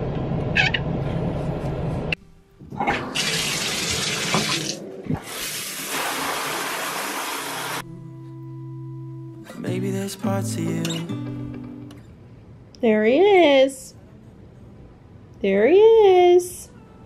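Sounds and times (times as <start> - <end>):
shower spraying into tub: 3.2 - 7.8.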